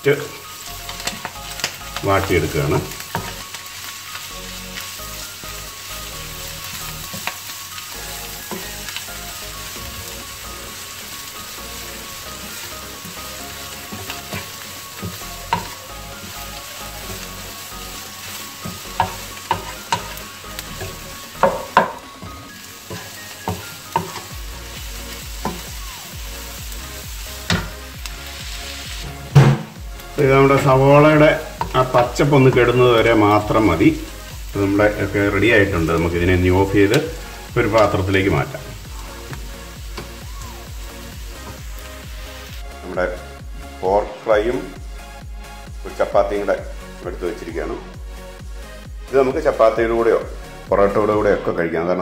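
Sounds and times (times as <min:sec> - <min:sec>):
meat and onions sizzling: 0:00.0 - 0:51.3
spatula knocking on pan: 0:20.8 - 0:22.4.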